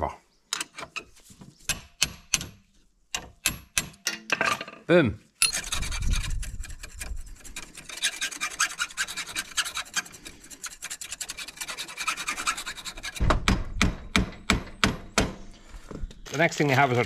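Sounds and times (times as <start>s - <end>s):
screwdriver scraping: 5.4s - 13.2s
metal knocks: 13.1s - 15.4s.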